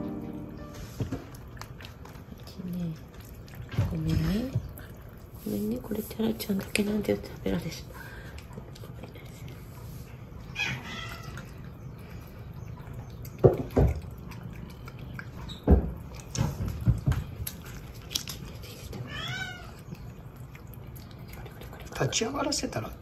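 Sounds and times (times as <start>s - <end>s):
cat meowing: 19.0s - 19.8s.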